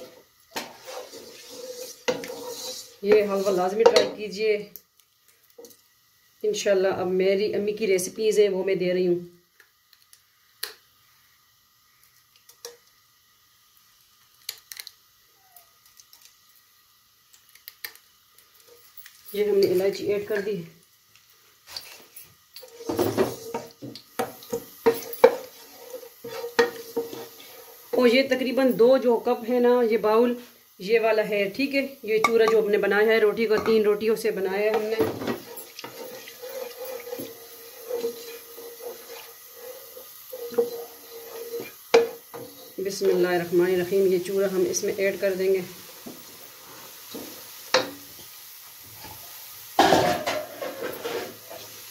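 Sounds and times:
wooden spoon stirring: 0.0s - 4.1s, 22.6s - 28.4s, 33.4s - 44.0s
spices sizzling in oil: 0.0s - 51.9s.

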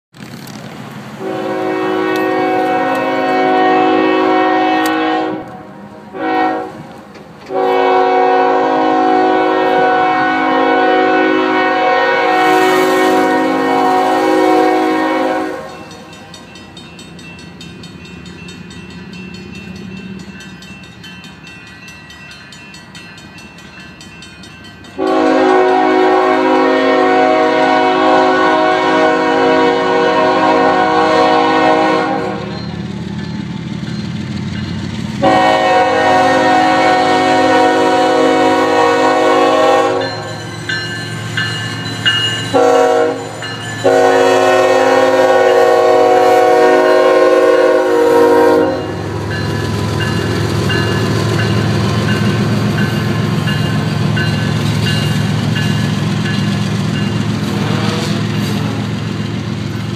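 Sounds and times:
train rumble: 0.1s - 59.9s
locomotive air horn: 1.2s - 16.1s, 25.0s - 32.6s, 35.2s - 40.4s, 42.5s - 49.2s, 57.4s - 58.8s.

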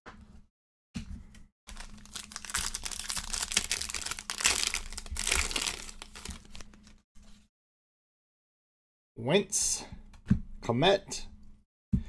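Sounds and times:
foil wrapper tearing and crinkling: 1.7s - 7.0s.

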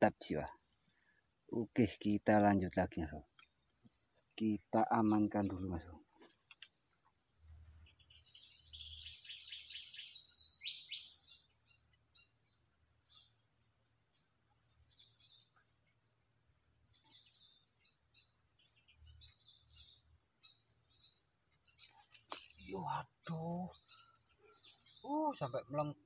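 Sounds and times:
high-pitched insect drone: 0.0s - 26.0s
bird chirps: 7.7s - 12.3s, 18.8s - 25.9s.

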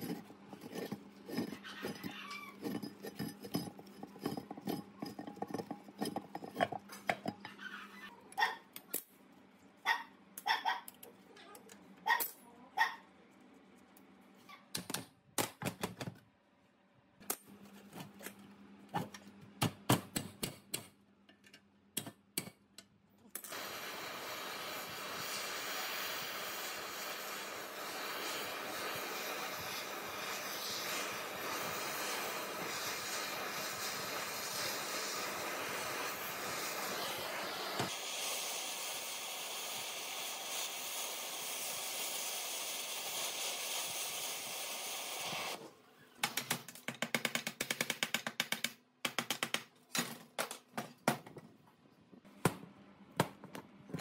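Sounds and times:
steady hiss: 23.4s - 45.6s
sharp clicks and knocks: 46.2s - 51.4s.

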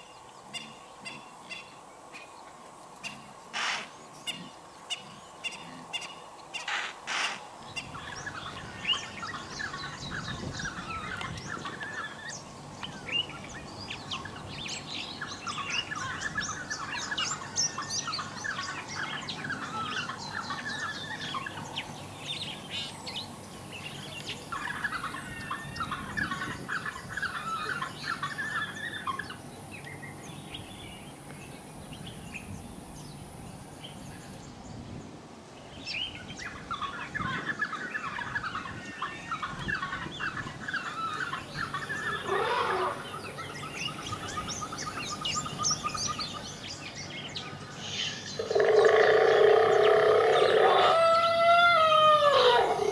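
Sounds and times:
high chirping and twittering calls: 0.0s - 2.4s, 3.0s - 34.8s, 35.7s - 52.9s
steady high hiss: 0.0s - 25.4s.

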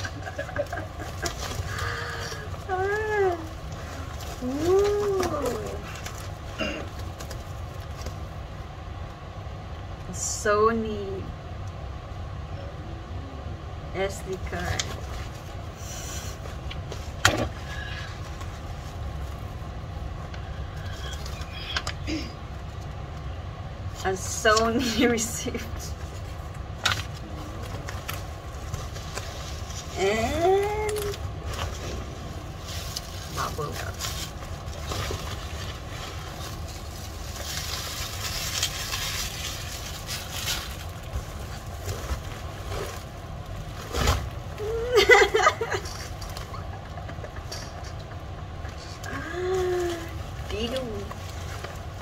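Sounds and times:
plastic mailer rustling: 0.0s - 8.4s, 26.0s - 48.8s
bubble wrap crinkling: 0.0s - 9.2s, 14.3s - 24.0s, 24.8s - 52.0s
low background rumble: 0.0s - 52.0s.

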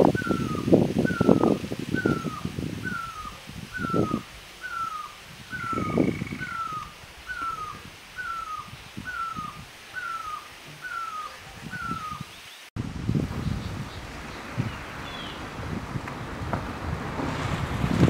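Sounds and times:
wind rumbling on microphone: 0.0s - 18.0s
bird calling short down-slurred notes: 0.2s - 12.4s.

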